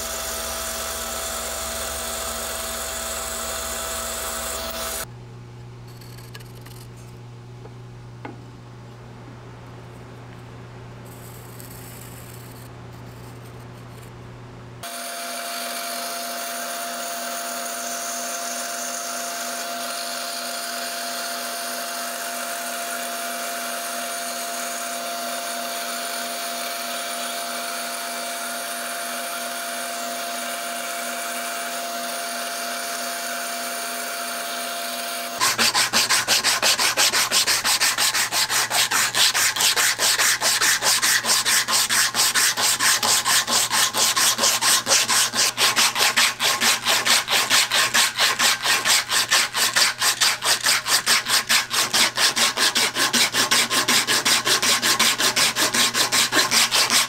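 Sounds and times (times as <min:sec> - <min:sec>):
band saw cutting wood: 0:00.0 - 0:05.1, 0:14.8 - 0:57.0
sanding belt rasping on wood: 0:35.4 - 0:57.0.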